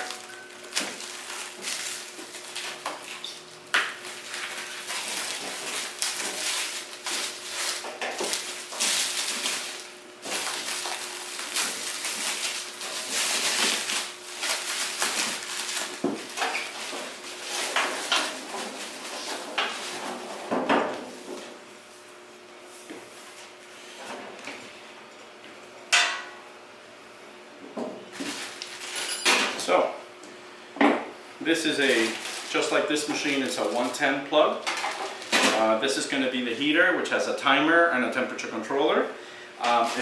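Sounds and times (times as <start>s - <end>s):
plastic wrap crinkling and tearing: 0.0s - 20.1s, 28.1s - 29.1s, 31.5s - 36.1s, 39.6s - 40.0s.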